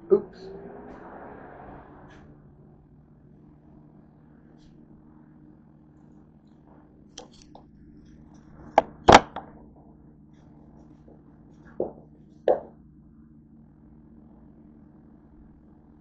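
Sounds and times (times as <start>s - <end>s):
steady low hum: 0.0s - 16.0s
knocks of things being handled: 8.8s - 9.5s.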